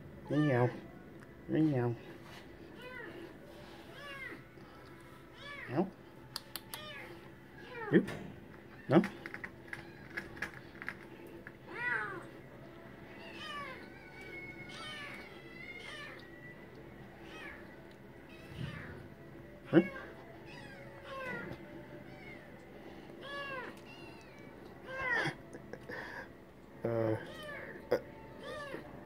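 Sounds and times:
cat meowing: 11.7 - 12.3, 13.2 - 16.3, 18.3 - 19.0, 19.6 - 22.5, 23.2 - 25.4, 28.4 - 28.9.

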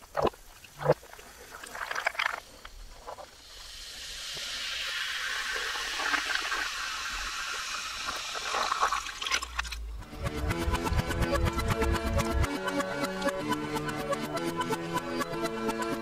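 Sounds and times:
reversed cola fizzing in glass: 3.3 - 9.8.

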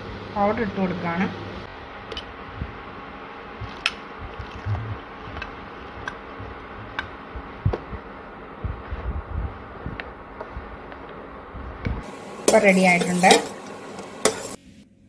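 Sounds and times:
spoon clinking against pot: 12.4 - 14.6.

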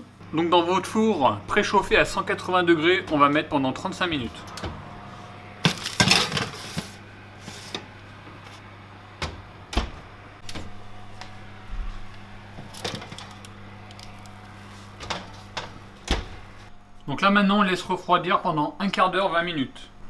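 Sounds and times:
metal tray scraping on oven rack: 5.2 - 8.0
oven door shutting: 9.2 - 10.8, 15.0 - 16.6.

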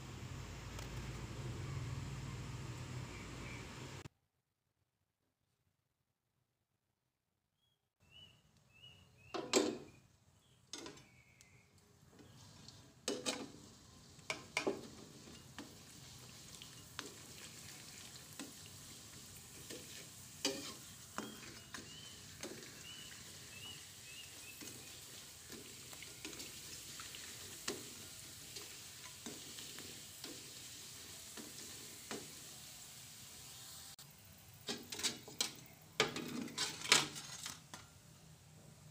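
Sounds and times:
crackers sizzling in hot oil: 9.8 - 38.2
metal spatula scraping wok: 12.1 - 32.8, 34.6 - 37.9.

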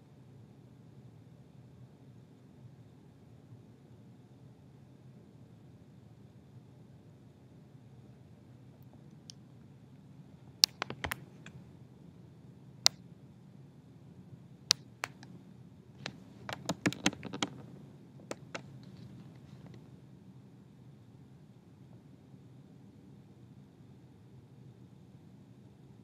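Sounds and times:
faint low hum: 0.0 - 26.0
sharp clicks and light taps: 10.6 - 11.6, 14.7 - 15.4, 16.0 - 19.8.

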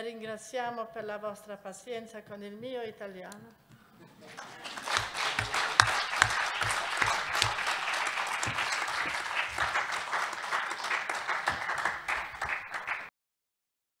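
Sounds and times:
audience applauding: 4.3 - 13.1.

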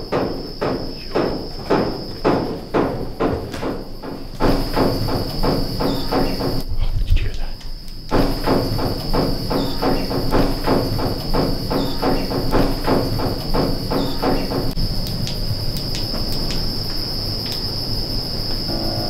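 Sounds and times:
crickets chirping: 0.0 - 19.0
low buzzy pulsing sound: 8.1 - 19.0.

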